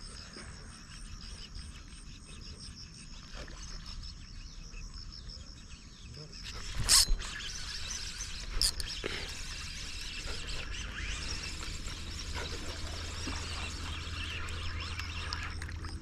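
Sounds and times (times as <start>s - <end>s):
faint bird chirps: 0.0s - 16.0s
insects hissing: 6.2s - 14.3s.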